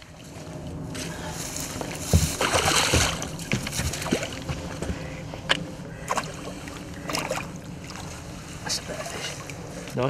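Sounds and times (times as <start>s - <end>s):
fish splashing in water: 2.2s - 5.2s, 5.9s - 8.4s.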